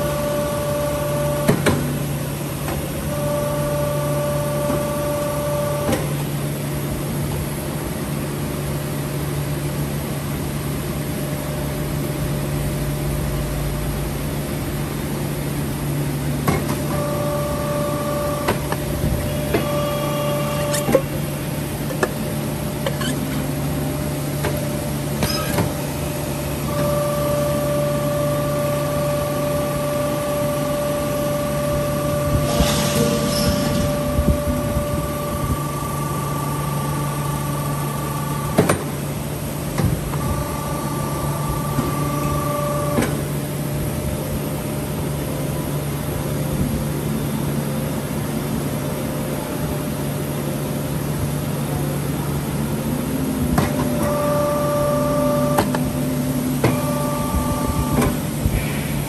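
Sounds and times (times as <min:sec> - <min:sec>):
motor hum: 0:00.0 - 0:07.0, 0:16.0 - 0:45.2, 0:51.8 - 0:59.0
machine whine: 0:00.0 - 0:59.0.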